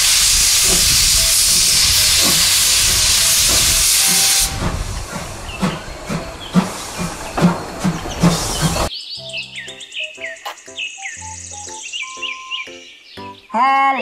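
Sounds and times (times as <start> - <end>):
steam locomotive hissing steam: 0.0 - 8.9.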